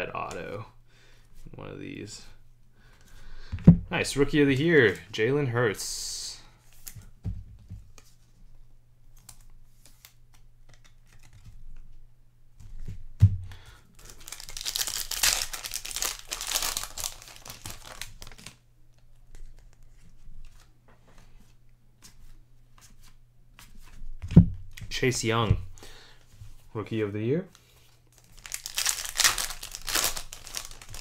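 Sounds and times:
cards clicking and rustling: 9.1 - 11.9, 27.5 - 31.0
wrapper tearing and crinkling: 14.0 - 18.6, 28.1 - 31.0.

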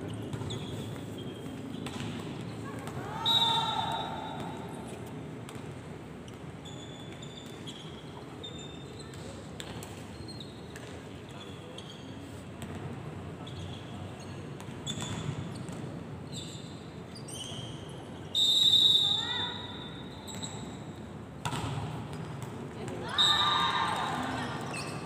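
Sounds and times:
sneakers squeaking on court: 0.0 - 2.9, 5.5 - 18.4, 19.9 - 22.7, 24.0 - 25.0
low crowd chatter: 17.7 - 25.0.

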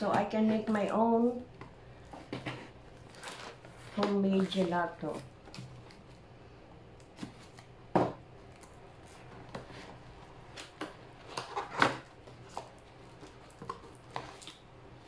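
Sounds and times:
packaging rustling and scraping: 2.0 - 6.2, 8.4 - 14.7.

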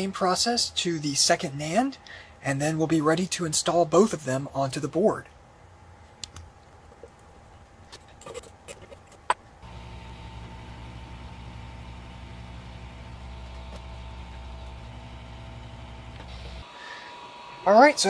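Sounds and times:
electric blower hum and hiss: 9.6 - 18.0.

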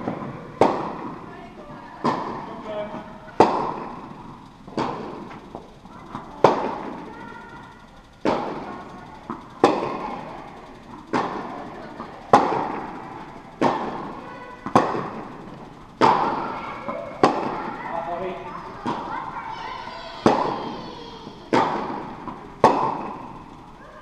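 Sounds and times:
tennis ball struck by rackets: 0.0 - 1.2, 2.0 - 4.0, 4.7 - 6.9, 9.3 - 10.0, 11.1 - 11.6, 12.3 - 12.9, 13.6 - 15.3, 17.2 - 17.6, 21.5 - 23.4.

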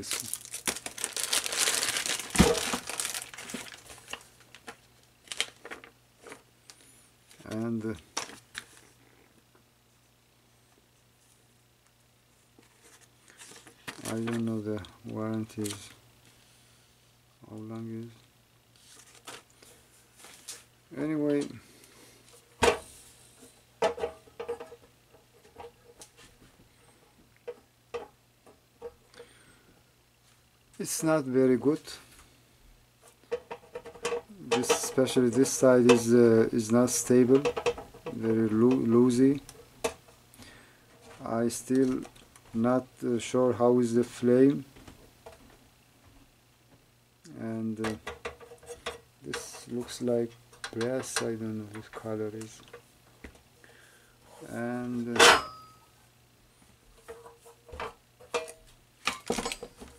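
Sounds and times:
plastic bag crinkling: 0.0 - 5.9.

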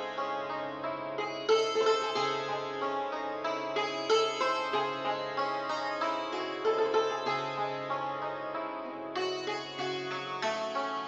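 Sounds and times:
plucked string melody: 0.0 - 11.0.

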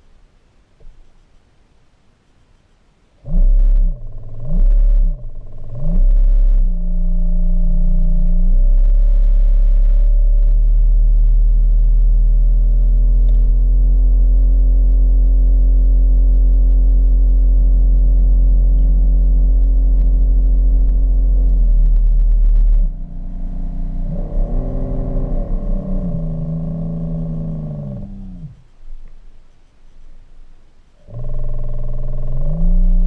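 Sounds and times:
low hum underwater: 3.0 - 33.0
electric motor tones changing pitch: 16.3 - 28.4.

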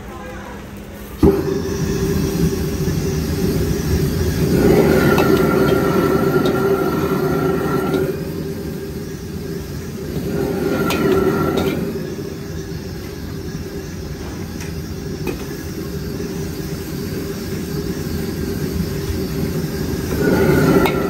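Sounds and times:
gas burner humming: 0.8 - 21.0
metal utensils scraping wok: 1.5 - 12.8, 20.0 - 21.0.

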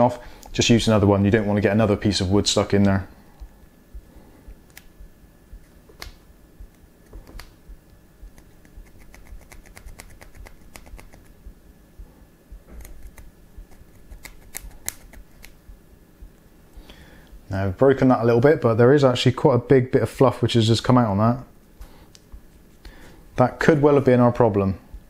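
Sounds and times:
toothpick scraping in charging port: 8.3 - 11.4, 12.7 - 15.6.

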